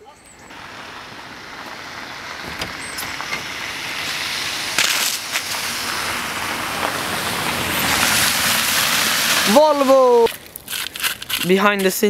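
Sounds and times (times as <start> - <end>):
outdoor noise: 0.0 - 12.0
shoes scuffing on gravel: 10.3 - 12.0.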